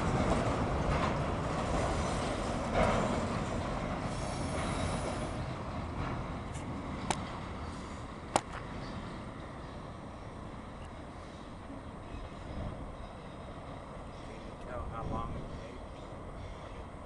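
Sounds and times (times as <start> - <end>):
train wheels rumbling on rail: 0.0 - 17.0
high wheel squeal: 4.1 - 5.6.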